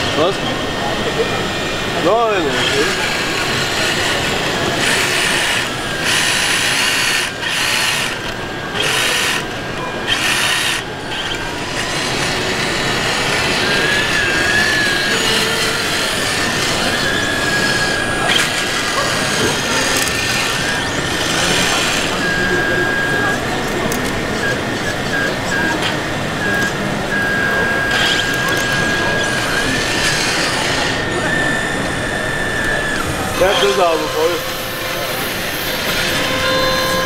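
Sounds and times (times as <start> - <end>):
busy hall background noise: 0.0 - 37.0
toy loader motor whirring: 1.6 - 37.0.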